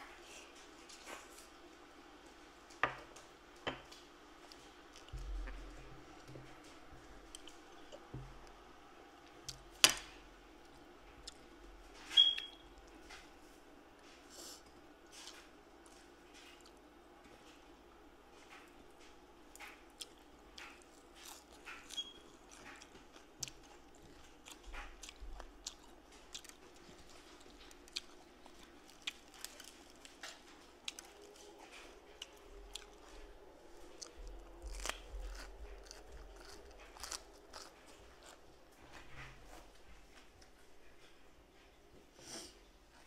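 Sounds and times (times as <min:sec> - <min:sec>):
person chewing crunchy food: 0:04.4 - 0:08.6, 0:19.5 - 0:39.7.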